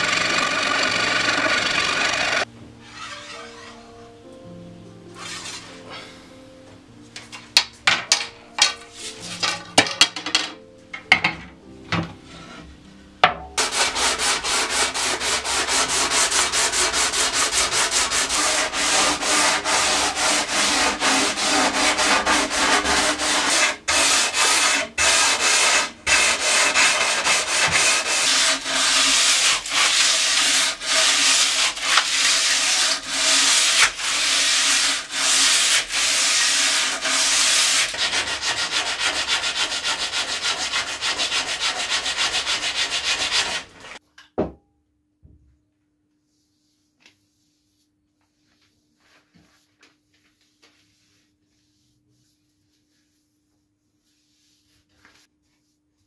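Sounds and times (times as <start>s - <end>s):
wood being hand-sanded: 0.0s - 3.7s, 13.6s - 44.0s.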